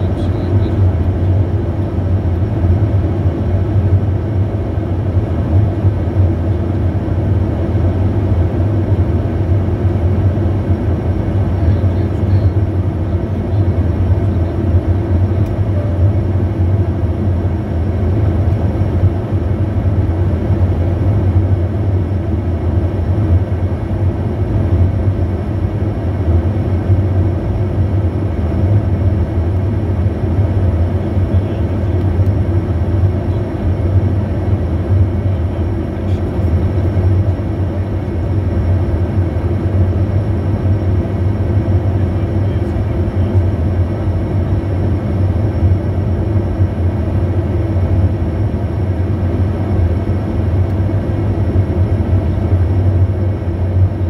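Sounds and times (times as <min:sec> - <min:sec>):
jet cabin engine roar: 0:00.0 - 0:54.0
faint high whine: 0:15.3 - 0:17.2.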